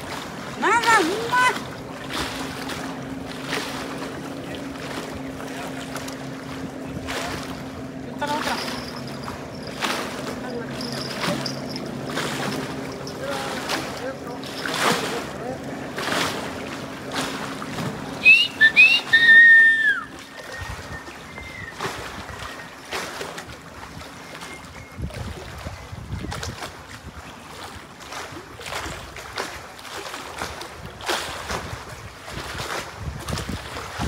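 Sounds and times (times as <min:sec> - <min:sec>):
wind buffeting microphone: 0:00.0 - 0:19.3, 0:20.0 - 0:22.7, 0:24.8 - 0:27.4, 0:30.4 - 0:34.0
water washing: 0:00.0 - 0:24.5
high whistling chirps: 0:18.2 - 0:21.8.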